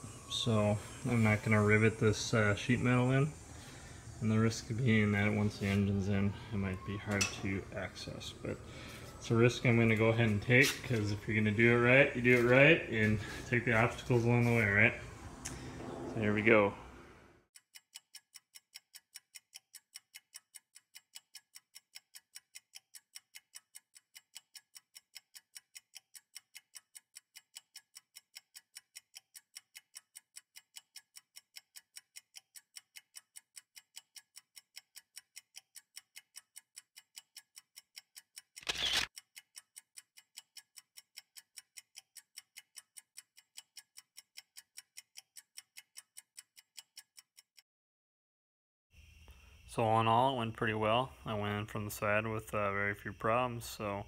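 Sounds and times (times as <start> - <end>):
clock ticking: 17.5 - 47.6.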